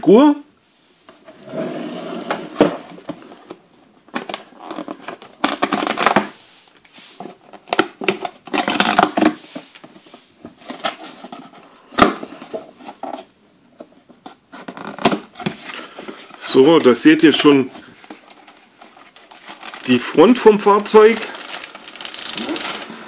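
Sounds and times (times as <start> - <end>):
cardboard scraping and rustling: 1.2 - 3.6.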